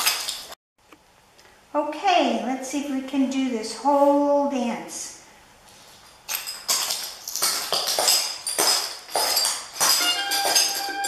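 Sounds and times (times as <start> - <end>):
tap shoe footsteps on concrete: 6.7 - 11.0
plucked string music: 10.0 - 11.0.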